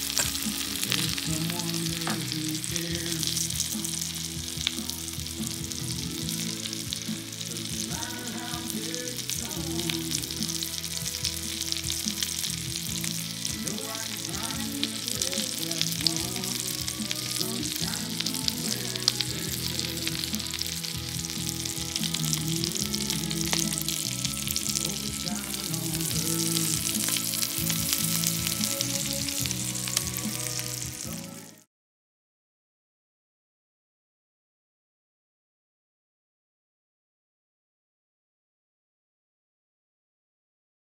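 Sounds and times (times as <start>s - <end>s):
meat sizzling in a skillet: 0.0s - 31.7s.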